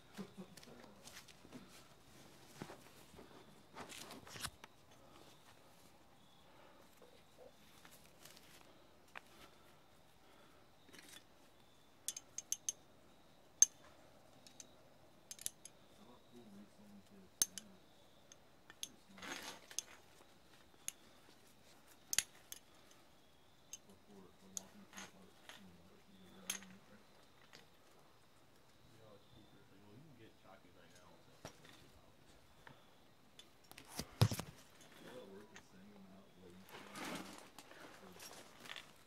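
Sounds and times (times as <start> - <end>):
carabiners clicking and clinking: 12.0 - 12.8, 13.6 - 15.8, 17.4 - 17.7, 18.3 - 20.1, 21.9 - 23.0, 26.3 - 27.7.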